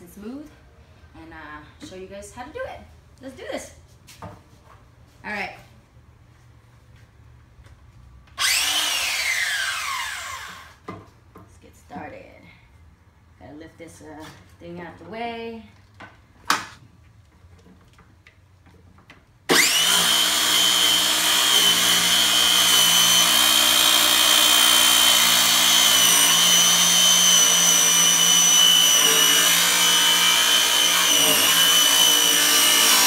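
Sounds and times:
circular saw cutting wood: 0:08.4 - 0:10.8, 0:19.5 - 0:33.0.

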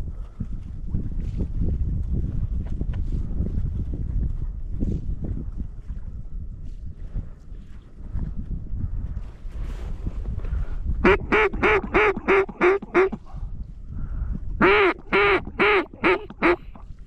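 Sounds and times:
duck call quacks: 0:11.0 - 0:13.2, 0:14.6 - 0:16.8.

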